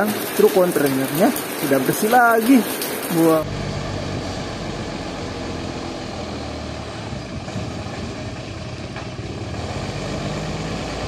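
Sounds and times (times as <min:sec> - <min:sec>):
diesel truck engine running: 0:03.4 - 0:11.0.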